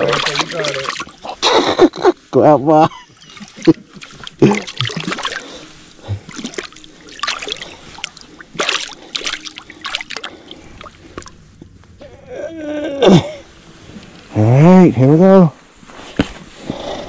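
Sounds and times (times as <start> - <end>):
lake water splashing: 0.0 - 1.8, 2.9 - 11.4.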